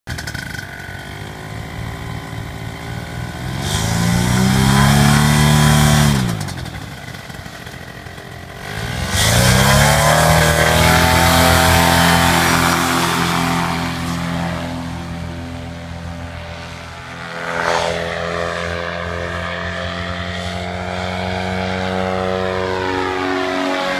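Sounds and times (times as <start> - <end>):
paramotor engine and propeller revving: 0.1 - 23.9.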